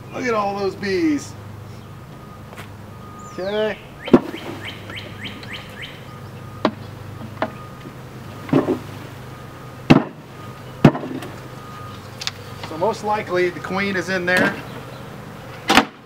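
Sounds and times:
bird chirping: 0.0s - 15.7s
sharp wooden knocks: 4.1s - 4.6s, 9.9s - 10.2s, 10.8s - 11.3s, 15.7s - 16.0s.

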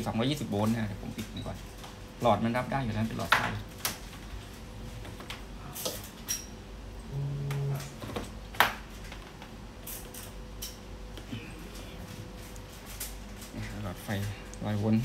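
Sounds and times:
faint steady equipment tone: 0.0s - 15.0s
short low buzz: 7.1s - 8.0s.

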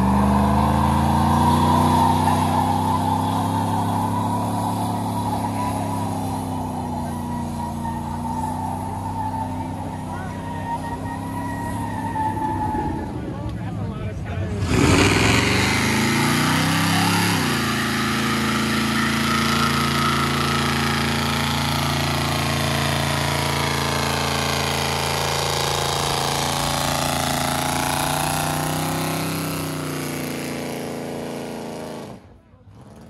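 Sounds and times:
engine revving hard: 0.0s - 13.0s, 14.5s - 33.0s
tyre hissing and squealing: 0.1s - 13.1s.

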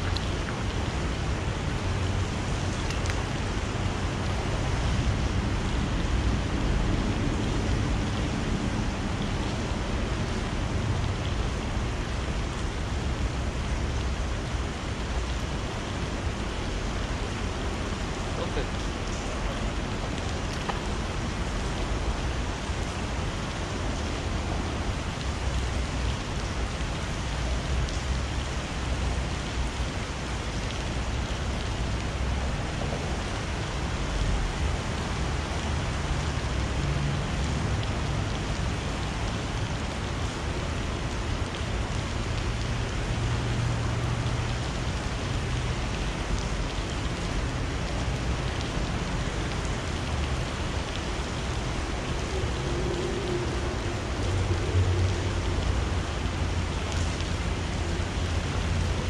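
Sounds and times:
rain over a river: 0.0s - 59.0s.

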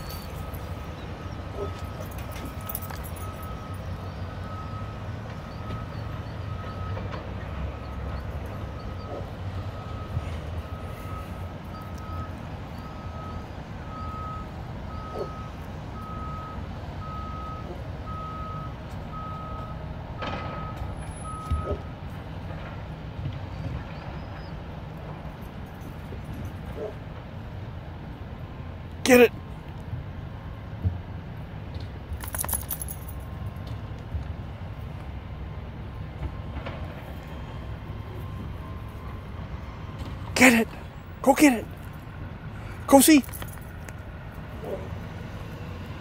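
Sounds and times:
reversing alarm beeping: 0.0s - 21.9s, 37.2s - 40.3s
engine rumble: 0.0s - 46.0s.

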